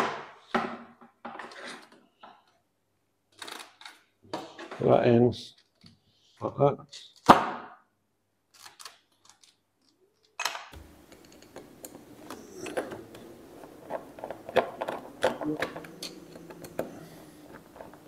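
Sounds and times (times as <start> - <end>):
faint steady hum: 10.8 - 18.0.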